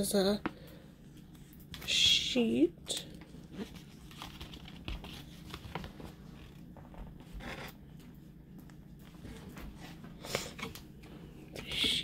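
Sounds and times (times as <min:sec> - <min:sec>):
paper and plastic rustling: 0:02.9 - 0:07.4.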